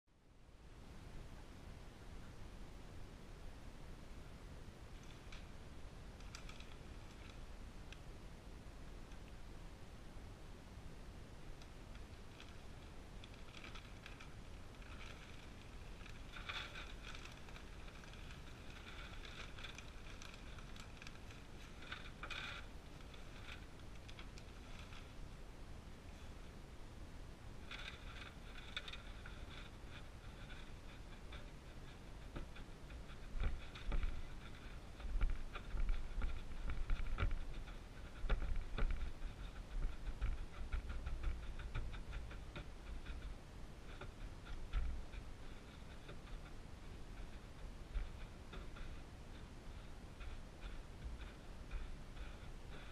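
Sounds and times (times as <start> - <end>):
hand rustling wood shavings: 12.0 - 25.3
wood shavings crunching: 12.0 - 25.3
plastic bag crinkling: 12.3 - 25.2.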